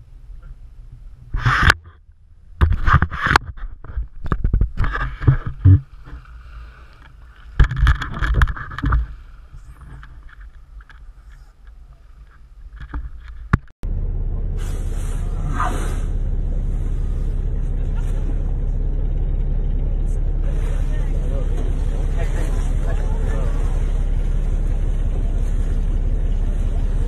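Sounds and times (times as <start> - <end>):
low rumble: 0.0 - 27.0
wind: 0.0 - 27.0
water sloshing and splashing: 20.4 - 27.0.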